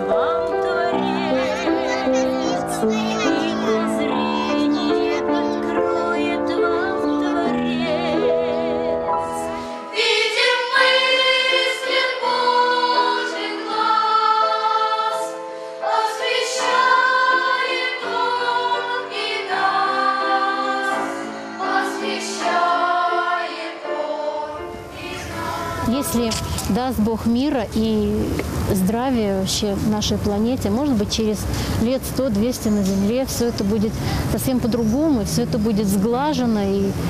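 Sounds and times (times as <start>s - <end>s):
choir singing held notes: 0.0s - 29.2s.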